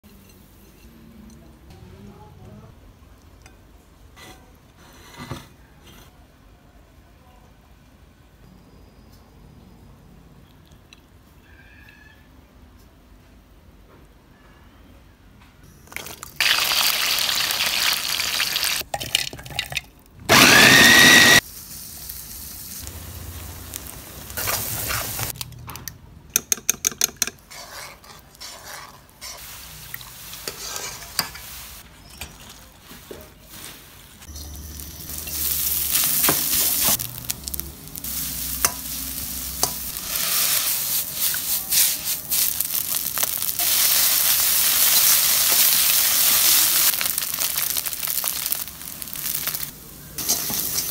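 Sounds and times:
food sizzling in hot oil: 16.4s - 18.9s, 20.3s - 25.4s, 28.4s - 31.8s, 34.2s - 50.9s
metal ladle scraping a wok: 27.4s - 29.7s, 30.3s - 32.6s, 34.2s - 43.0s, 50.2s - 50.9s.

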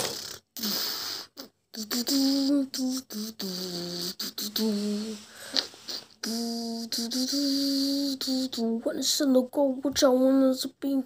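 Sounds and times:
person singing low tune: 1.4s - 8.8s.

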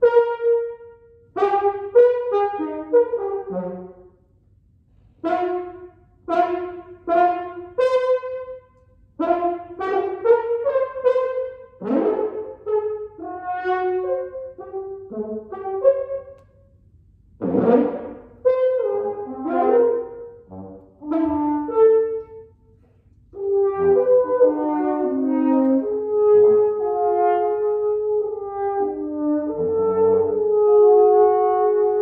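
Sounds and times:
french horn: 0.0s - 4.2s, 5.2s - 16.5s, 17.4s - 32.0s
saxophones playing: 17.4s - 22.5s, 23.4s - 32.0s.

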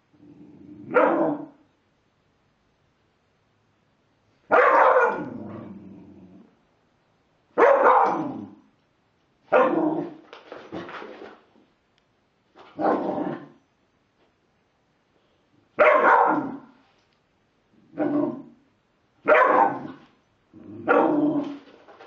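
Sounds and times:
young dog barking: 0.9s - 1.6s, 4.5s - 5.5s, 7.6s - 8.4s, 9.5s - 10.2s, 15.8s - 16.8s, 19.2s - 20.0s, 20.8s - 21.4s.

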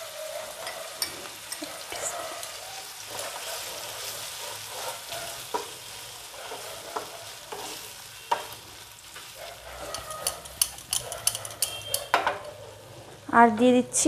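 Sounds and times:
chicken sizzling in a frying pan: 0.0s - 11.0s
wooden spatula scraping a pan: 3.1s - 11.9s.

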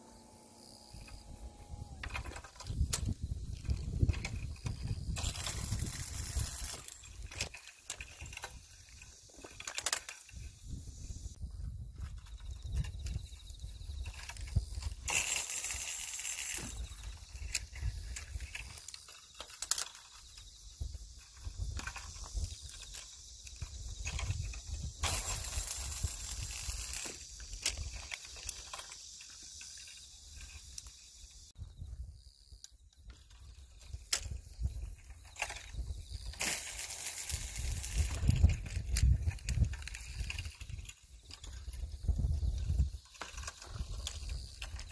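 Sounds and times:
wind rumbling on microphone: 0.9s - 9.6s, 10.3s - 15.2s, 20.7s - 28.2s, 33.1s - 44.9s.

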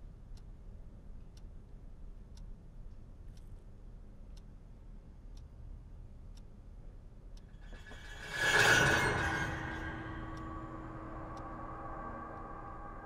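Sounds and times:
low steady hum: 0.0s - 13.0s
loud ringing noise: 7.6s - 13.0s
wall clock ticking: 9.3s - 13.0s.

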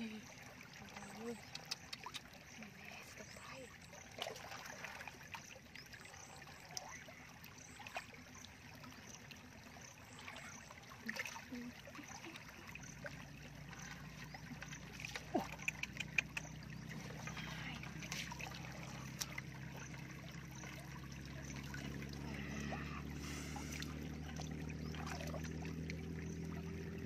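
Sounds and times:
small splashes and drips: 0.0s - 27.0s
hands splashing in shallow water: 13.7s - 19.9s, 23.2s - 25.7s.

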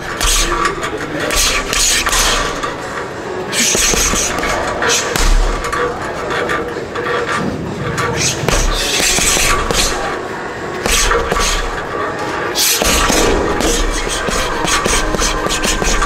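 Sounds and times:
punches thudding on heavy bag: 3.6s - 5.8s, 8.5s - 10.1s, 10.9s - 11.8s, 12.8s - 16.0s.

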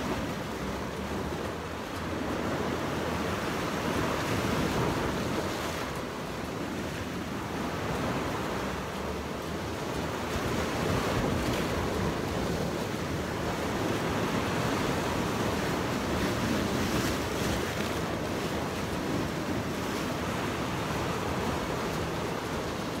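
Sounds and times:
waves breaking against rocks: 0.0s - 23.0s.

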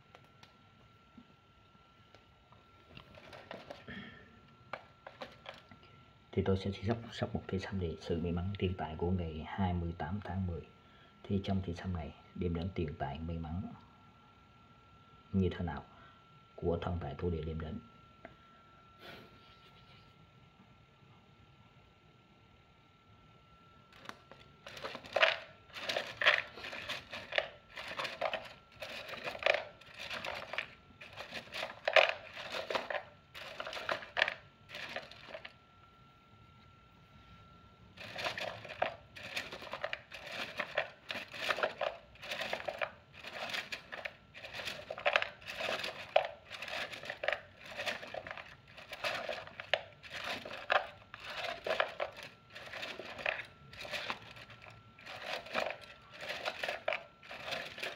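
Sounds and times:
wooden sticks rattling in cylinder: 3.0s - 3.9s, 4.7s - 5.7s, 24.0s - 35.6s, 38.0s - 57.9s.

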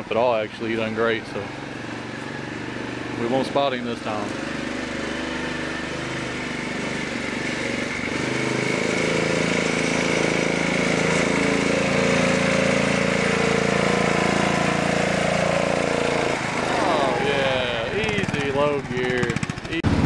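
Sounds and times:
small tractor engine running: 0.0s - 20.0s.

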